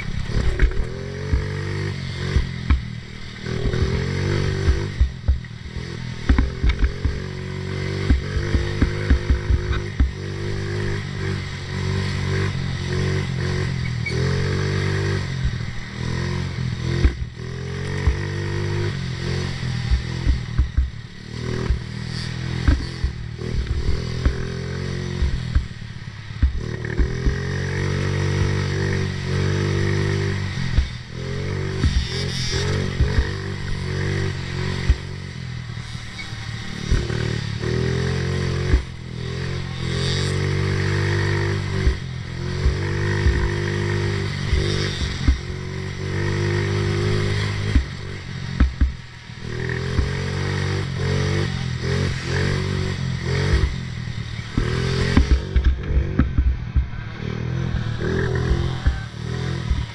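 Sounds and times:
racing engine revving: 0.0 - 59.9.

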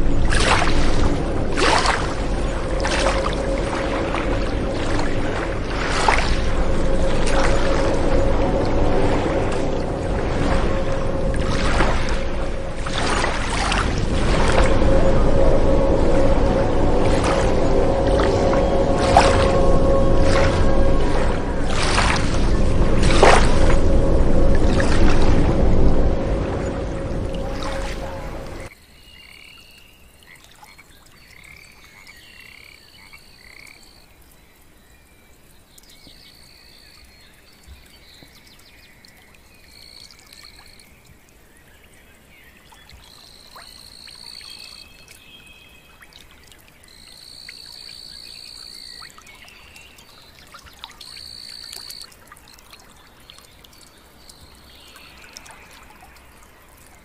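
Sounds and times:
frogs trilling: 27.3 - 34.7, 39.7 - 41.5, 42.1 - 45.2, 45.8 - 57.0.

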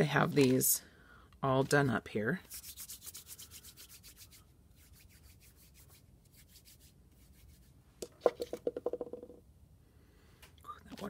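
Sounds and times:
fingers rubbing damp clay: 2.4 - 9.2.

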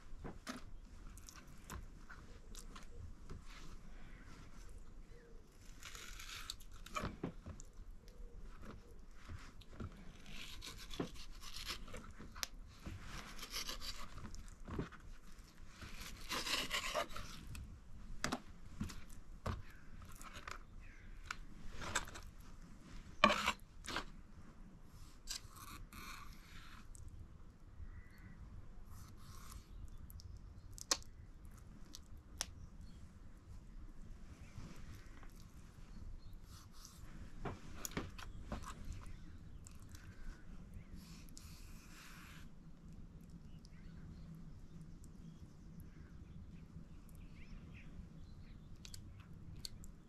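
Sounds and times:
scraping and rubbing: 5.6 - 7.6, 8.6 - 17.6, 21.6 - 24.2.

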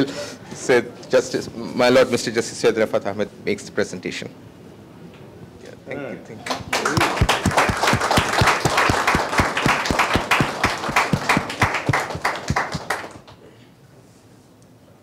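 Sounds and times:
audience applauding: 6.4 - 13.4.

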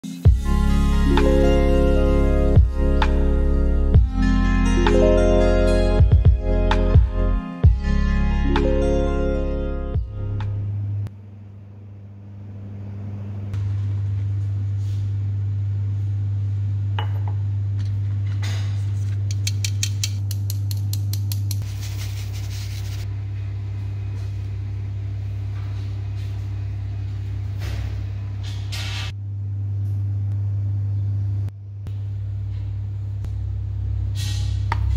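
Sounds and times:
steady low hum: 0.2 - 34.9
flour hissing: 21.6 - 23.0.

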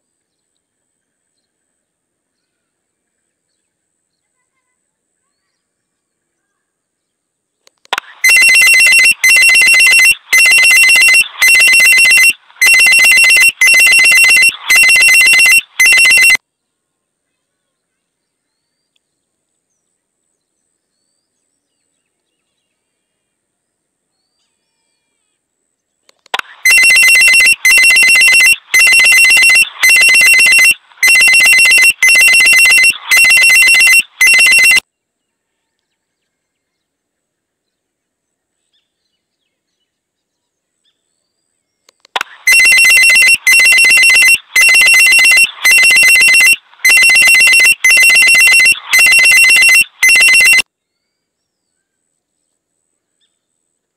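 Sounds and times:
electronic telephone ringing: 8.0 - 16.4, 26.4 - 34.8, 42.2 - 50.6.

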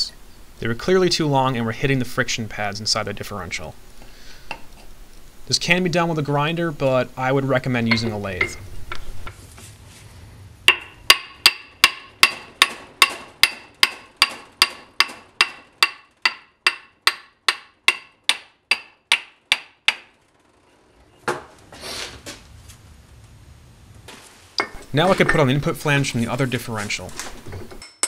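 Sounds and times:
scuffing of handling: 21.3 - 23.4, 24.0 - 27.5.

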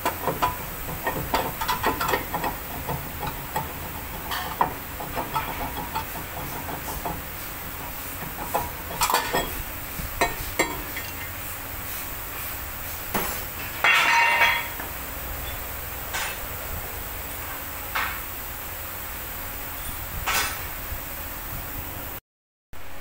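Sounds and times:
metal clinks and knocks: 8.2 - 9.6.

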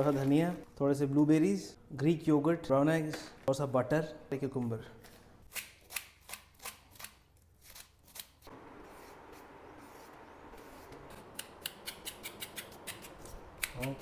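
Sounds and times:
sharp crisp clicks: 11.2 - 14.0.

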